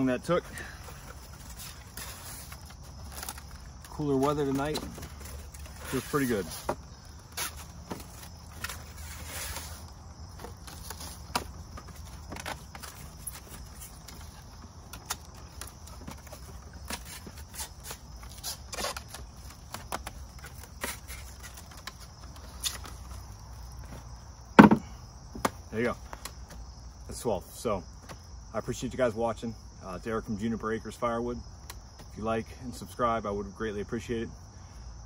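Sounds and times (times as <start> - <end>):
crickets chirping: 0.0 - 35.0
firewood clicking and knocking: 10.3 - 26.6.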